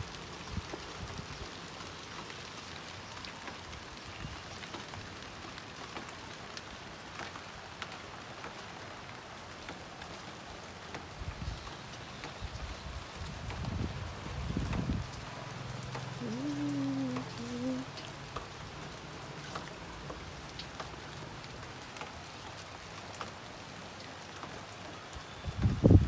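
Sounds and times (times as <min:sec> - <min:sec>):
steady rain: 0:00.0 - 0:26.0
drops ticking on leaves and pots: 0:14.6 - 0:25.7.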